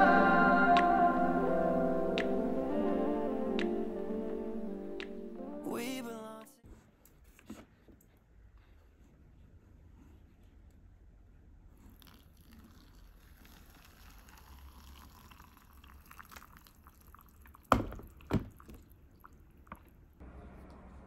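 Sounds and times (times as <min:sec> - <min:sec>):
hot water pouring into cup: 0:12.0 - 0:19.4.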